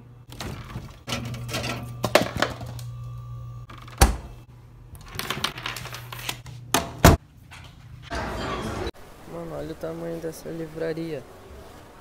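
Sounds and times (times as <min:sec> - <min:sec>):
fridge humming: 0:00.0 - 0:08.6
fridge door thud: 0:03.7 - 0:04.4, 0:06.7 - 0:07.2.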